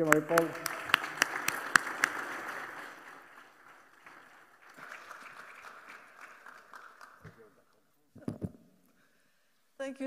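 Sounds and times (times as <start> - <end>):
audience clapping: 0.0 - 7.8
close hand claps: 0.0 - 7.8.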